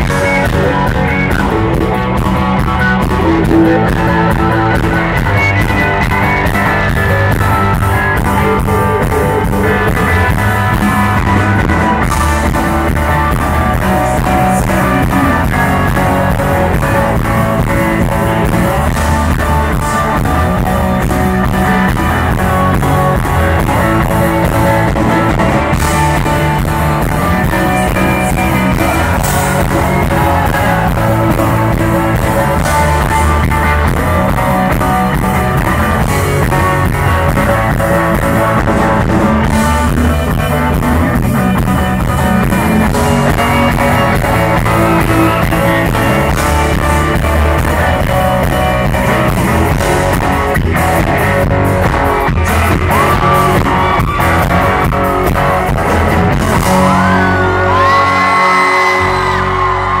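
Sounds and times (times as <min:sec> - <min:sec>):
live rock band: 0:00.0 - 1:00.0
person singing: 0:00.0 - 1:00.0
crowd whooping: 0:25.0 - 0:35.1, 0:51.8 - 1:00.0.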